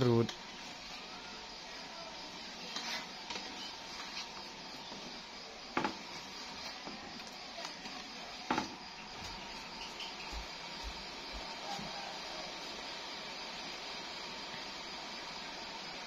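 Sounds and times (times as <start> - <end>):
steady hiss: 0.0 - 16.0
spatula stirring syrup: 0.3 - 5.2.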